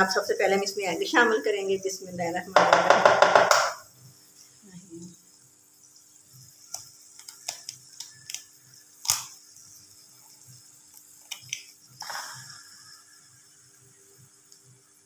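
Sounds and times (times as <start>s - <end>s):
faint steady hum: 0.0s - 15.0s
eggshell cracking: 6.6s - 9.5s, 10.9s - 11.8s.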